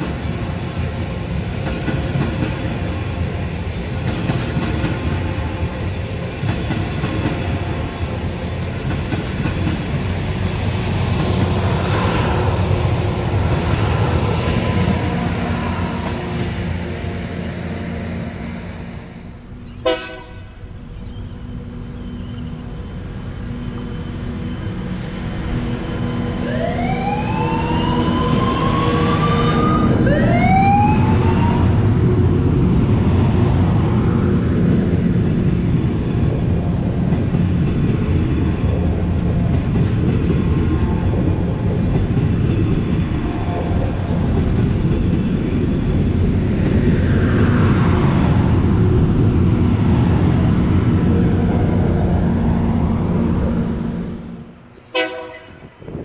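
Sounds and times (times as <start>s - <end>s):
diesel train engines running: 0.0s - 56.0s
wheels rumbling on rails: 0.0s - 56.0s
rising whines: 20.9s - 32.6s.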